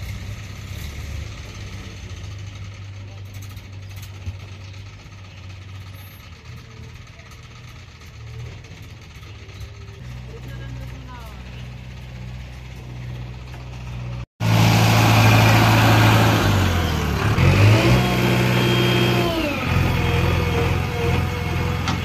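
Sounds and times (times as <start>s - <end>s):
diesel engine revving: 0.0s - 22.0s
high engine whine: 8.7s - 22.0s.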